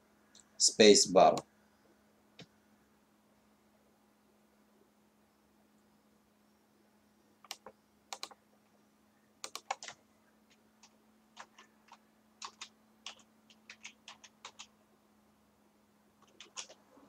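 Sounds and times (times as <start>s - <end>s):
keyboard typing: 7.4s - 8.4s, 9.4s - 14.7s, 16.2s - 16.8s.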